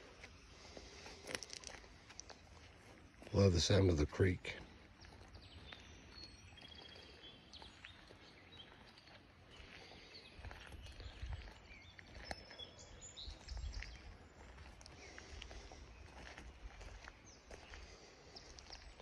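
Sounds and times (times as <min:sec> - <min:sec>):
songbirds chirping and trilling: 0:00.0 - 0:19.0
trickling creek: 0:00.6 - 0:12.8.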